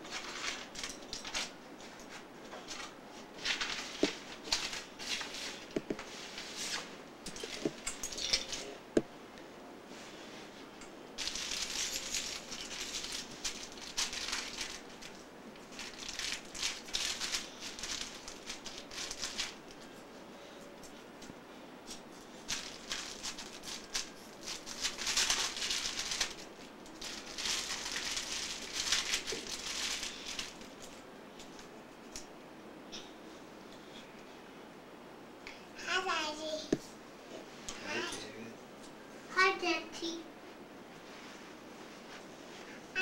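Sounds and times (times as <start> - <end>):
plastic toy pieces rattling: 11.2 - 15.1, 15.7 - 19.6, 22.5 - 30.6.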